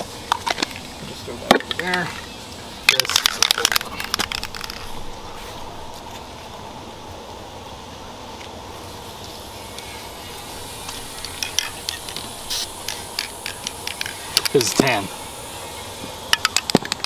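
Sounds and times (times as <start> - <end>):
steady background hiss: 0.0 - 17.0
spray can ball rattling: 1.6 - 5.3, 10.6 - 15.2, 16.1 - 17.0.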